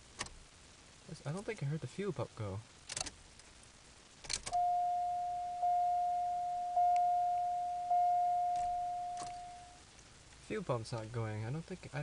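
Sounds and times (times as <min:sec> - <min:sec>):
dashboard warning chime: 0:04.6 - 0:09.8.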